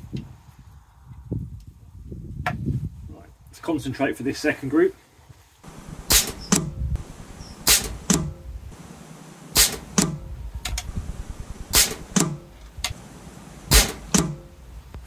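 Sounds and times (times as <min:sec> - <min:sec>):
air rifle shots: 0:05.7 - 0:14.6.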